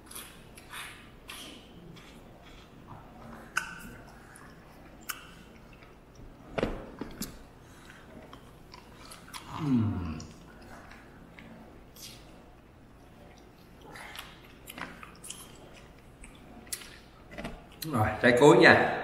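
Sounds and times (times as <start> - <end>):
chewing and biting: 0.0 - 17.9.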